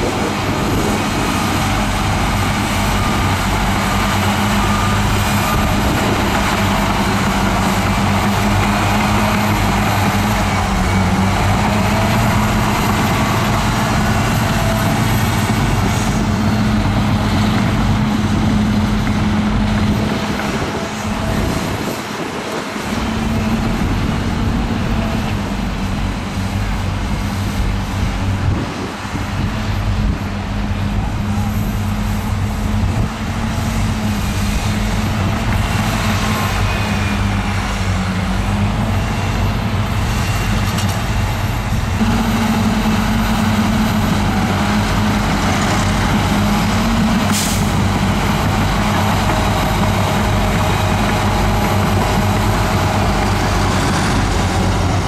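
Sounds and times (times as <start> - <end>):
bulldozer diesel engine under load: 0.0 - 55.0.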